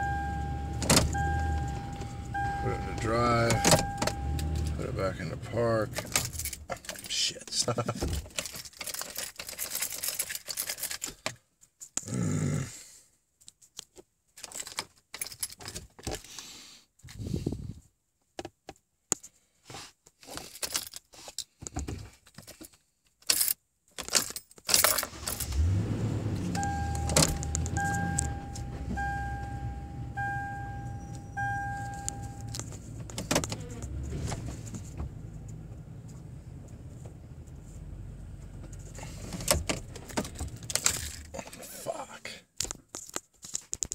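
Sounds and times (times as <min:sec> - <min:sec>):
dashboard warning chime beeps: 0:00.0 - 0:04.8, 0:26.4 - 0:32.6
car engine starting and idling: 0:00.0 - 0:06.7, 0:25.0 - 0:41.6
keys jangling: 0:06.0 - 0:07.2, 0:08.1 - 0:11.2, 0:14.4 - 0:15.9, 0:20.4 - 0:21.1, 0:23.2 - 0:25.6.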